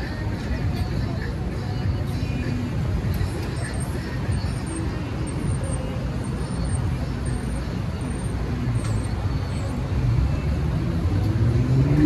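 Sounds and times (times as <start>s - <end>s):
car and bus engines rumbling: 0.0s - 12.0s
vehicle approaching: 9.2s - 12.0s.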